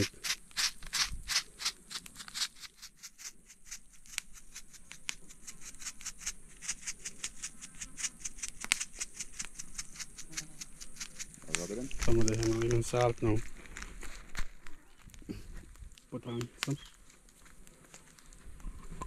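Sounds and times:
seasoning shaker rattling: 0.0 - 12.7.

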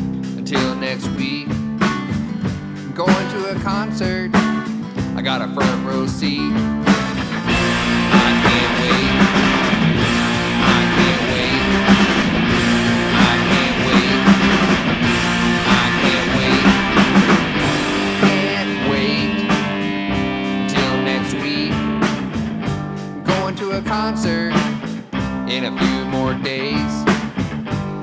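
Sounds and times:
drum kit: 0.0 - 28.0
electric guitar: 0.0 - 28.0.

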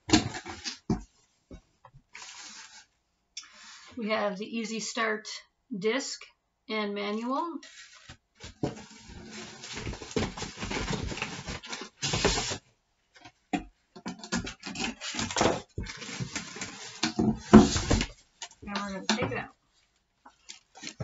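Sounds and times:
cardboard packing rustling: 2.0 - 2.9, 7.6 - 12.6, 14.2 - 21.0.

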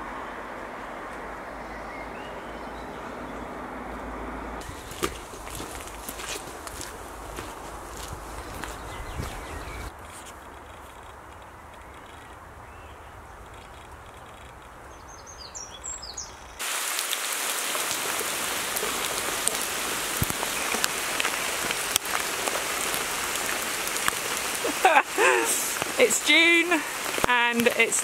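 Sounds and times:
bird chirps: 8.4 - 9.9, 11.6 - 16.6
torrential rain on a road: 16.6 - 28.0.

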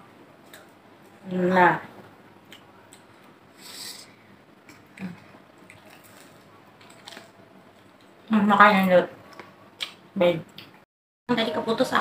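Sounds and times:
short hiss: 3.6 - 4.1
biting and chewing: 4.6 - 8.2.

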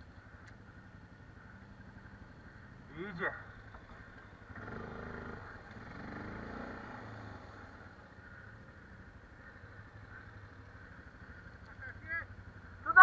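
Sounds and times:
quad bike engine revving: 1.4 - 8.9.

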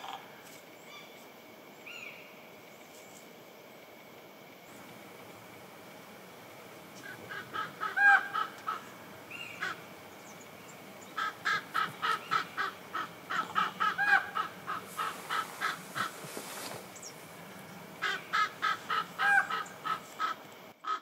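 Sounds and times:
bird calling harsh notes: 6.8 - 21.0.

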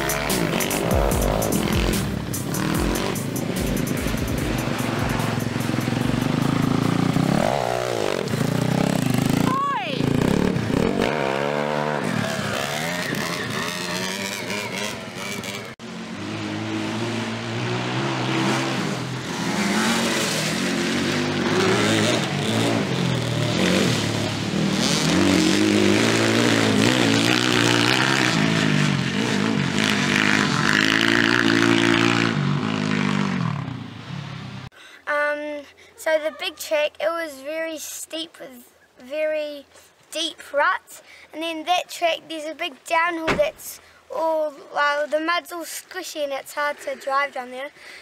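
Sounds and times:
dirt bike engine revving: 0.0 - 34.7.

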